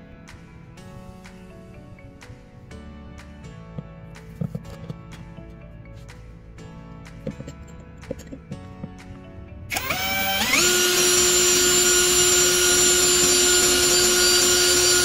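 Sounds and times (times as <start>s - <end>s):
quiet background music: 0.0s - 15.0s
cordless drill motor whining: 9.7s - 15.0s.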